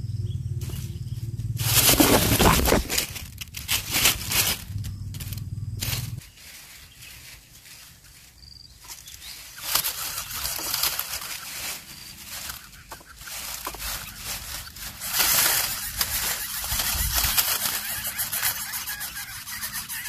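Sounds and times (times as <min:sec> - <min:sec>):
grass rustling: 0:00.6 - 0:20.0
chicks raspy hissing: 0:05.8 - 0:20.0.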